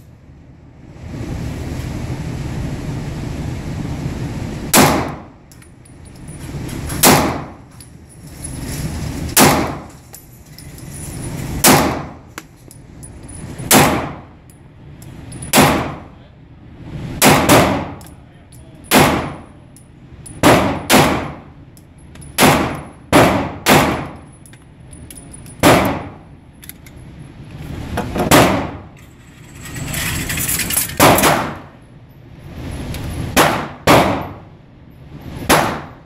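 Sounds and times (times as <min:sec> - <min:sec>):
handgun shots with echo: 0:04.7 - 0:05.2, 0:07.0 - 0:07.6, 0:09.4 - 0:09.8, 0:11.6 - 0:12.2, 0:22.4 - 0:24.2, 0:31.0 - 0:31.6, 0:33.4 - 0:34.4, 0:35.5 - 0:36.0.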